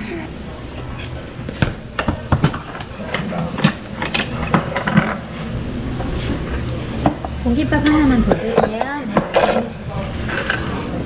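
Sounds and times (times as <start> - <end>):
pots and dishes clattering: 0.7 - 5.4, 7.0 - 10.9.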